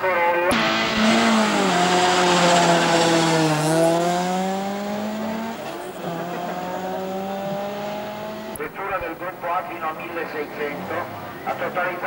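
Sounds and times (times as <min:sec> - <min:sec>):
racing car engine revving: 0:00.5 - 0:08.7.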